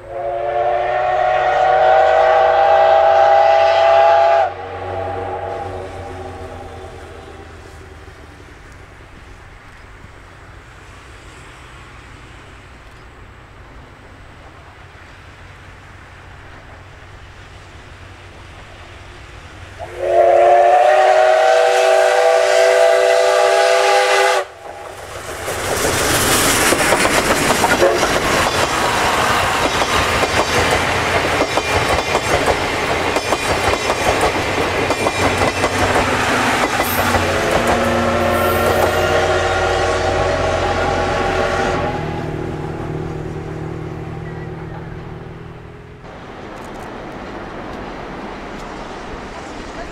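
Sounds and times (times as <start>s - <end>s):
steam locomotive whistle: 0.0s - 7.7s, 19.8s - 24.9s, 27.6s - 29.8s, 34.9s - 42.7s
train wheels clattering on rails: 24.6s - 39.2s
faint whistle-like tone: 44.2s - 45.0s.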